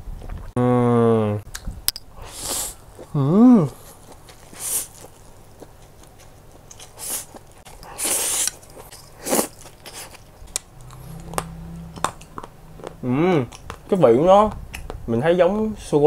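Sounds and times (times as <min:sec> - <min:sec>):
chewing: 0:02.3 - 0:14.0
noodles slurped: 0:06.9 - 0:11.4.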